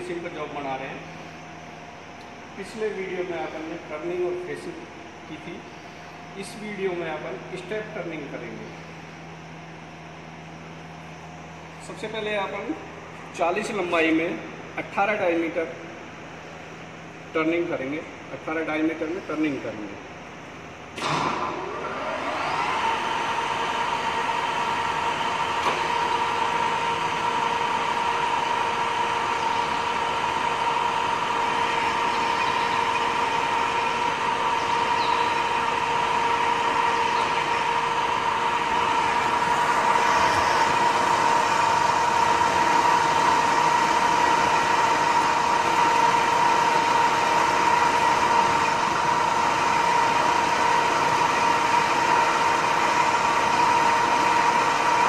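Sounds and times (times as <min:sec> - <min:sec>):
lathe motor whining: 0:20.9 - 0:55.0.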